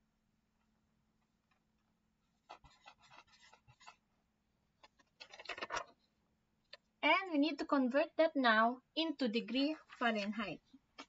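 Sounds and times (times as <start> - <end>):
pen scratching on paper: 2.4 - 4.0.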